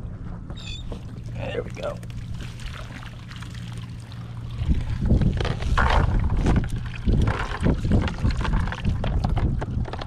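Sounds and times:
wet net rustling and dripping: 2.0s - 9.0s
wind buffeting microphone: 4.4s - 10.0s.

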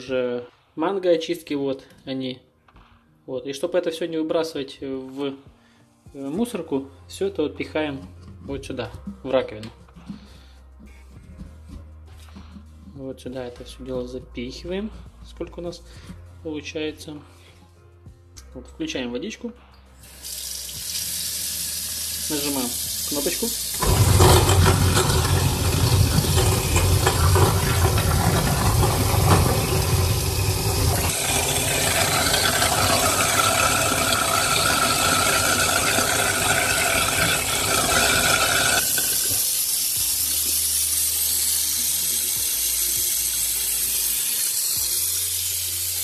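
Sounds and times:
running tap water: 20.0s - 46.0s
waste disposer grinding: 23.8s - 39.1s.

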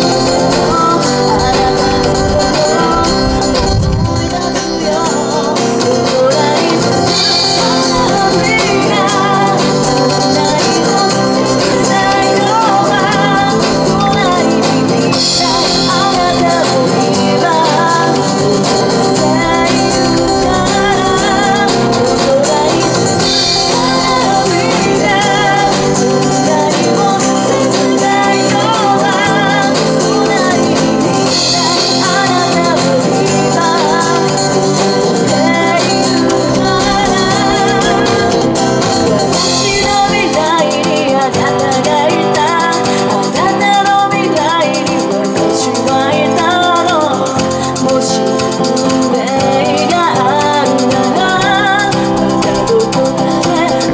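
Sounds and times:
strummed acoustic guitars: 0.0s - 53.9s
woman singing: 0.0s - 53.9s.

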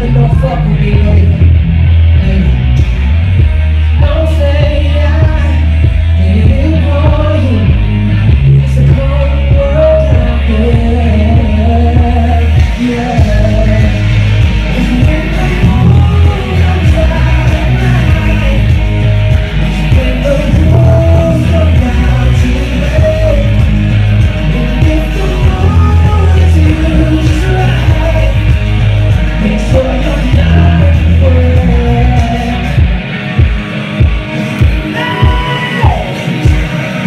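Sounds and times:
man singing into a microphone: 0.0s - 2.9s, 3.9s - 19.0s, 19.6s - 33.0s
loud backing music with bass: 0.0s - 37.0s.

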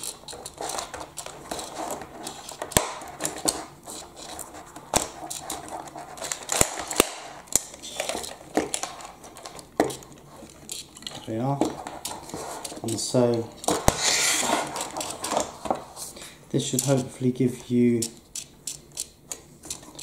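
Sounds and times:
scuffling handling noise: 7.8s - 16.2s
plastic toy parts clicking: 18.0s - 20.0s.

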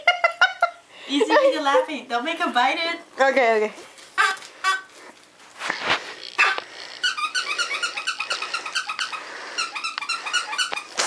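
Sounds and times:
puppy whining squeaks: 6.3s - 11.0s.

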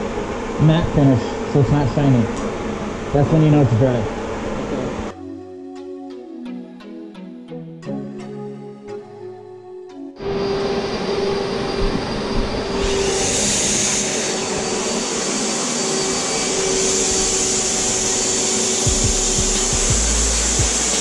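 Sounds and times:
turbine humming: 0.0s - 5.2s, 10.2s - 21.0s
spray gun air hiss: 11.2s - 21.0s.

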